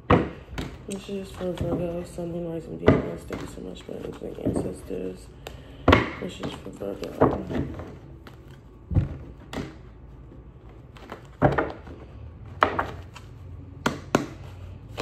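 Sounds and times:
cards being handled: 0:06.4 - 0:15.0.

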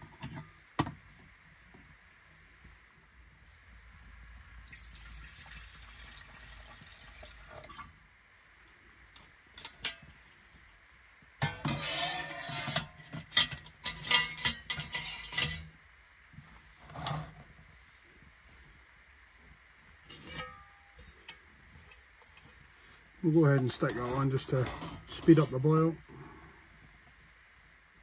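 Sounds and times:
soft hiss: 0:00.0 - 0:28.0
metal pot clanking and scraping: 0:09.6 - 0:10.1, 0:11.4 - 0:15.8, 0:16.8 - 0:17.5, 0:20.0 - 0:22.6, 0:23.6 - 0:25.6.

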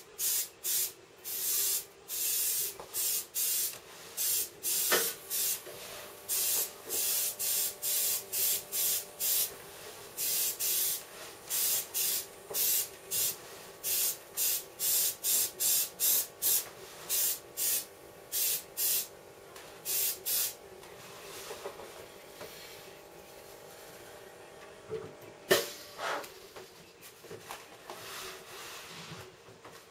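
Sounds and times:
airbrush spraying hiss: 0:00.2 - 0:09.6, 0:10.2 - 0:19.1, 0:19.8 - 0:20.6.

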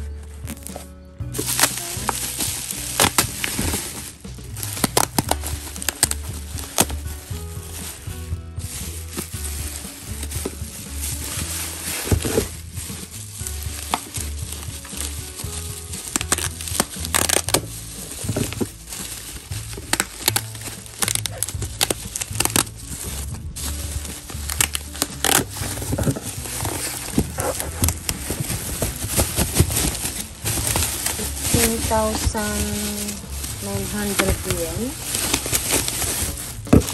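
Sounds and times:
bubble wrap crinkling and crackling: 0:00.0 - 0:36.9
low background music: 0:00.0 - 0:36.9.

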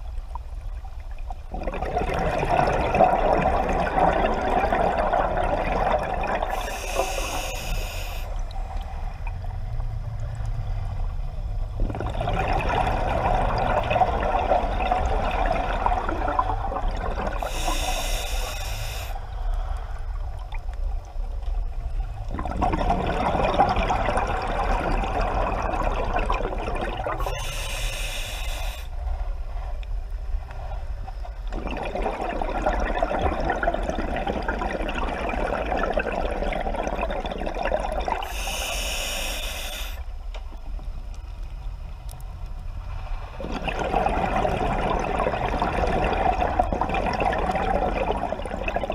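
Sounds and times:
bubbling exhaust underwater: 0:01.2 - 0:21.1, 0:21.9 - 0:28.9, 0:31.1 - 0:40.2, 0:43.2 - 0:48.9
regulator hissing inhales: 0:06.5 - 0:08.4, 0:17.5 - 0:19.3, 0:27.2 - 0:28.9, 0:38.2 - 0:40.1.

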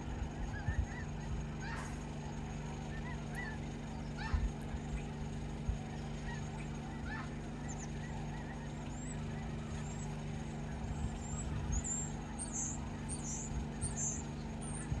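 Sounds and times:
low engine hum: 0:00.0 - 0:15.0
high bird chirps: 0:10.9 - 0:15.0.

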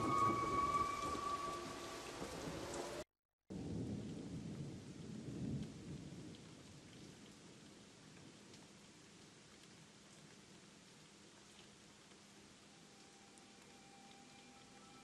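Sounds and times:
deep rumble like thunder: 0:00.0 - 0:07.2
steady hiss like rain: 0:00.0 - 0:15.0.

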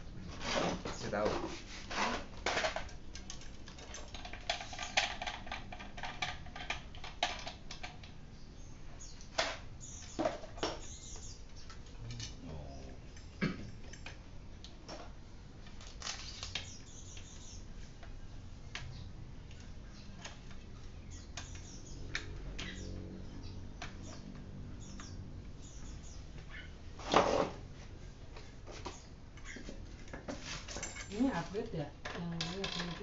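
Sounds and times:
tools tapping on bicycle wheel: 0:28.8 - 0:33.0.

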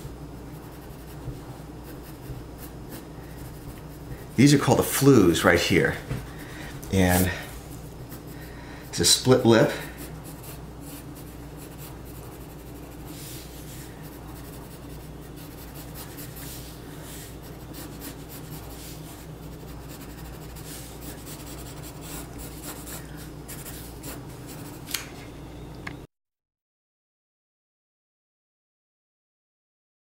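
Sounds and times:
low room hum: 0:00.0 - 0:26.1
pencil scratching on paper: 0:00.4 - 0:05.7, 0:09.9 - 0:24.9.

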